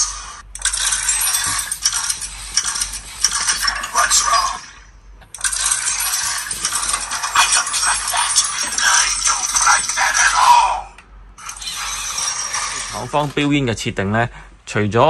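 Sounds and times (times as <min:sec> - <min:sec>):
robot servo motors whirring: 0:11.4 - 0:13.4.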